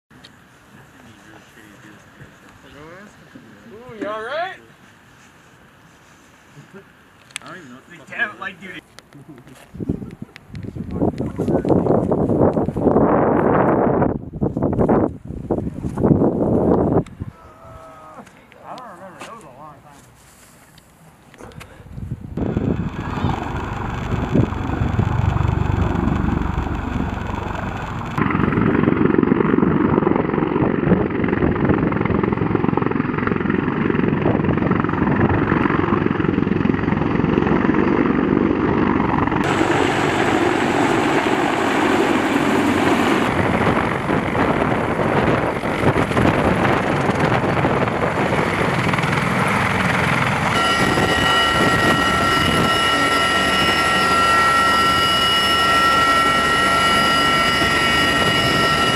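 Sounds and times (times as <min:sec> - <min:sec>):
helicopter flying low overhead: 0:09.8 - 0:17.4, 0:21.7 - 0:58.9
high turbine whine: 0:22.2 - 0:58.9.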